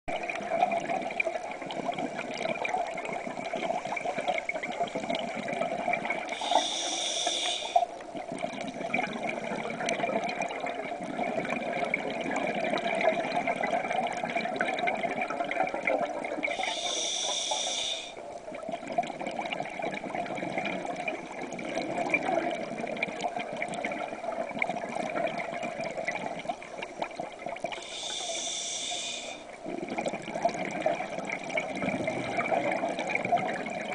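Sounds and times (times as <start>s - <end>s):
water noise: 0.1s - 33.9s
bubbling exhalations: 0.2s - 33.9s
regulator hissing inhalation: 6.3s - 7.9s, 16.5s - 18.2s, 27.8s - 29.5s.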